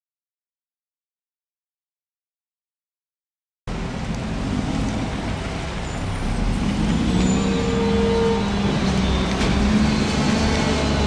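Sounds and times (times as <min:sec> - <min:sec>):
garbage truck diesel engine: 0:03.7 - 0:11.0.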